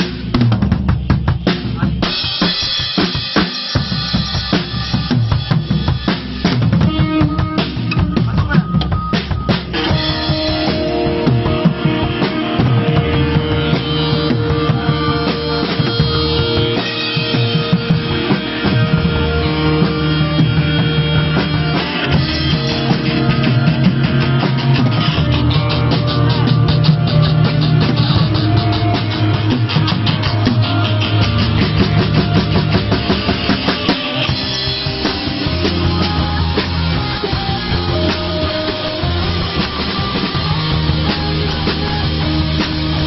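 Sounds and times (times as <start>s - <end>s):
drum kit: 0.0s - 43.0s
guitar chords: 2.0s - 43.0s.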